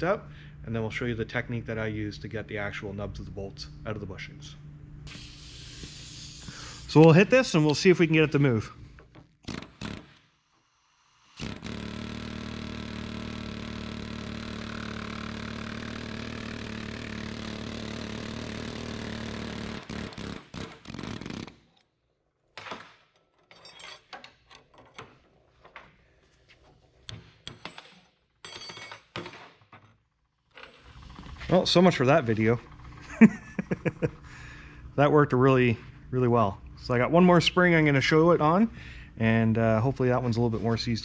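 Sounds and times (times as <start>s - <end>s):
pneumatic air chisel hammering: 5.1s - 7.2s, 9.4s - 21.8s.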